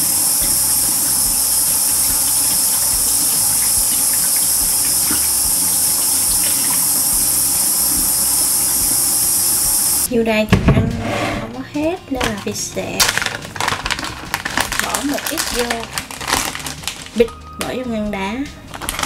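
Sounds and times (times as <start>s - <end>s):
tap water running: 0.0s - 10.1s, 12.2s - 17.3s.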